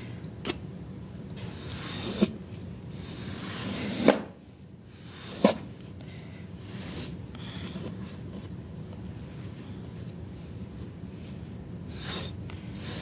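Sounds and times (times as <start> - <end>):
scraper rasping across rug: 3.0 - 4.1, 11.9 - 13.0.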